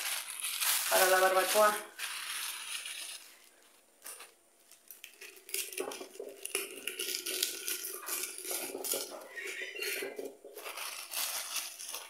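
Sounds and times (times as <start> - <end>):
dry leaves rustling: 0.0 - 3.7, 10.6 - 12.0
plastic bag crinkling: 0.0 - 12.0.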